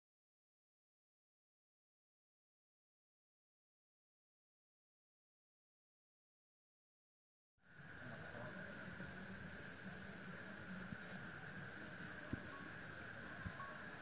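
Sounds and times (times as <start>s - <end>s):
crickets trilling: 7.6s - 14.0s.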